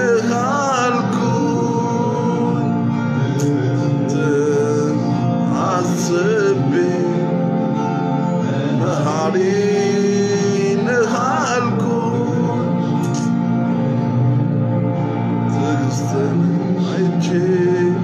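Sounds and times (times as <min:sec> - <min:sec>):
man singing: 0:00.0 - 0:13.7, 0:15.1 - 0:18.0
sustained instrumental backing: 0:00.0 - 0:18.0.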